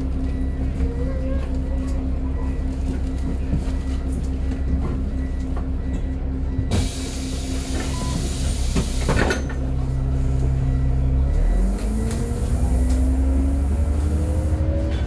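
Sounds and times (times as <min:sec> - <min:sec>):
bus diesel engine idling: 0:00.0 - 0:15.0
clunks: 0:02.8 - 0:10.5.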